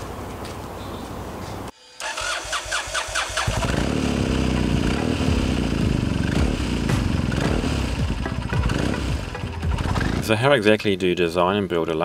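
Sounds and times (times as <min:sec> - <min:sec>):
starter motor cranking: 0:02.0 - 0:05.1
motorcycle engine running: 0:03.4 - 0:10.4.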